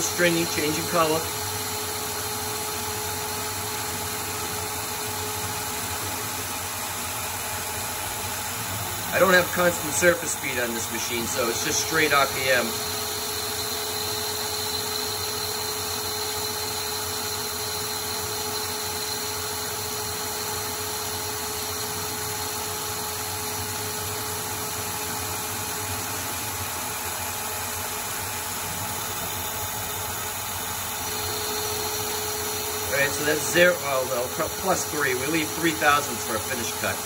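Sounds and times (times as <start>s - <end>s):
lathe cutting metal: 0.0s - 37.0s
lathe drive humming: 0.0s - 37.0s
coolant mist hissing: 30.7s - 36.8s.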